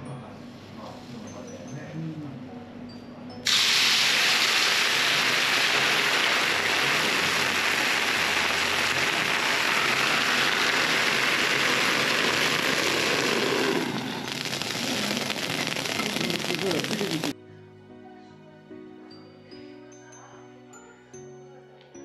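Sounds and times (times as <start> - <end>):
wine sizzling in hot clay pot: 3.4 - 17.4.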